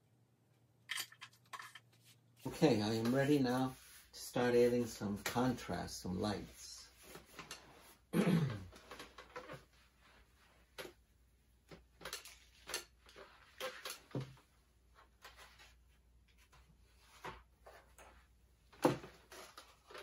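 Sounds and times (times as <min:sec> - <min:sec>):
drawing materials clicking and tapping: 0:11.7 - 0:14.1.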